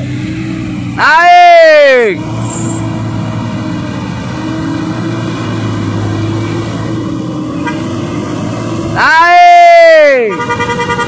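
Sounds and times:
truck engine running under load: 0.0s - 1.0s, 2.1s - 9.0s.

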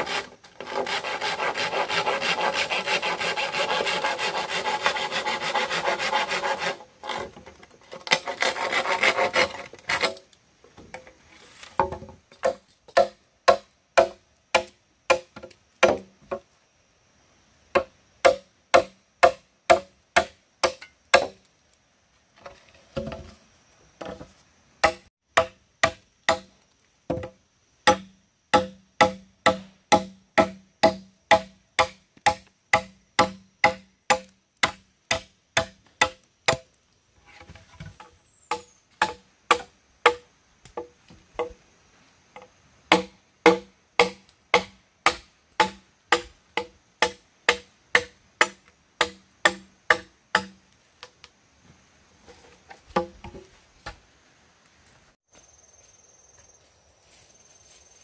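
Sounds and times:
machete chopping bamboo: 11.8s - 16.1s, 17.7s - 21.4s, 24.8s - 26.5s, 27.1s - 36.7s, 38.5s - 41.5s, 42.9s - 50.6s.

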